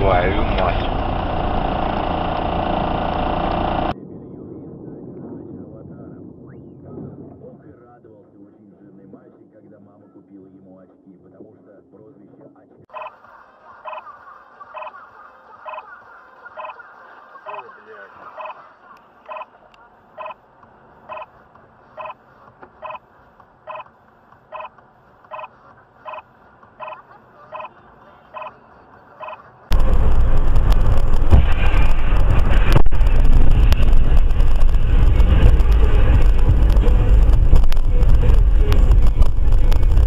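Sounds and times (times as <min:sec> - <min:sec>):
road and wind noise: 0:00.0 - 0:08.8, 0:18.1 - 0:40.0
electronic ticking: 0:21.1 - 0:21.3, 0:23.7 - 0:23.9, 0:24.5 - 0:25.5
sharp crack: 0:29.7 - 0:40.0.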